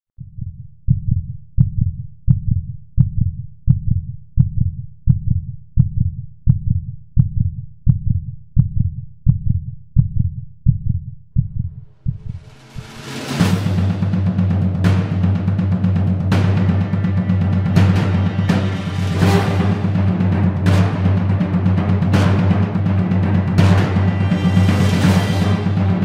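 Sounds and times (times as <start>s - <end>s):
heartbeat-like deep thump: 0.2s - 22.4s
drum-led music: 1.1s - 26.0s.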